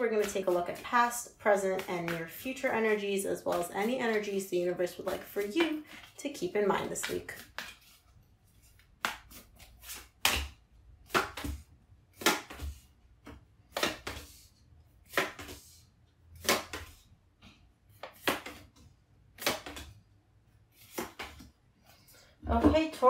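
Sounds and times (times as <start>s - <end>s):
cards slapping onto table: 18.1s - 18.7s, 20.9s - 21.5s.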